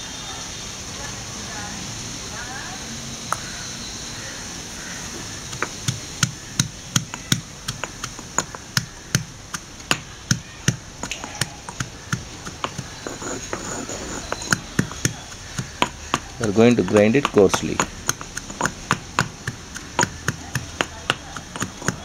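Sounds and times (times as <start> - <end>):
stone pestle pounding in mortar: 5.2 - 22.0.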